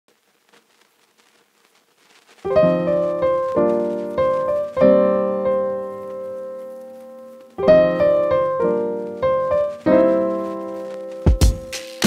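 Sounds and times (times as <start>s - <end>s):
piano music: 2.5s - 12.0s.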